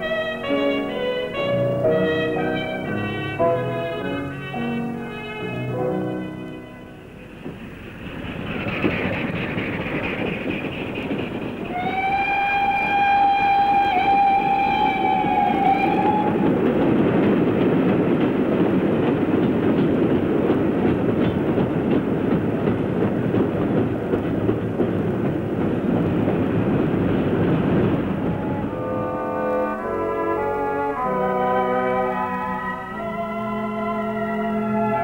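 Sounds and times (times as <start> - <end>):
passing train rumble: 0.0 - 35.0
steam locomotive whistle: 11.7 - 16.6, 28.1 - 35.0.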